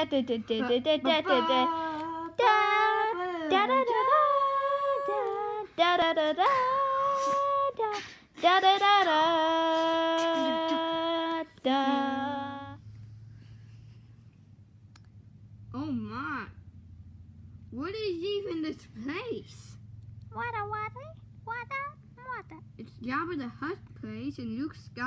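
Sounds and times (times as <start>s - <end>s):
person singing wordless tune: 0.0s - 12.8s.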